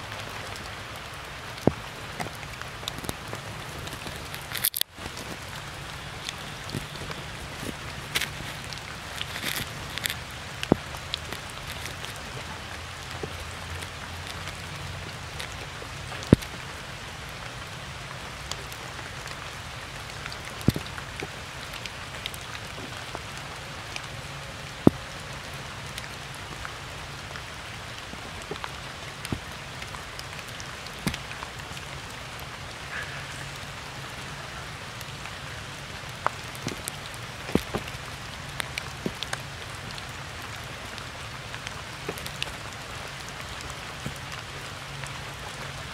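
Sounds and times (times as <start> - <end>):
rain on wet stone: 0.0 - 45.9
sharp raindrop taps: 0.1 - 45.8.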